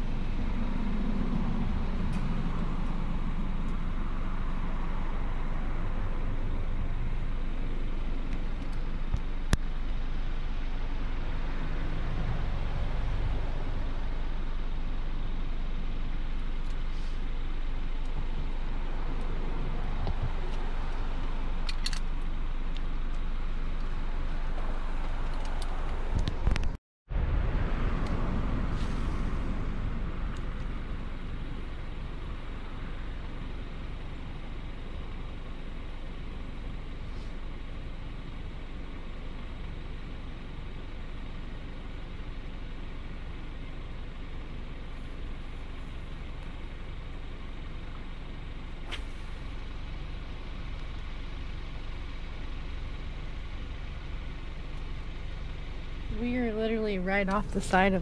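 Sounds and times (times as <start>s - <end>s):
vehicle passing by: 0.0s - 8.3s, 10.1s - 14.5s, 18.1s - 22.0s, 23.9s - 33.1s
rumble and hiss of road traffic: 0.0s - 58.0s.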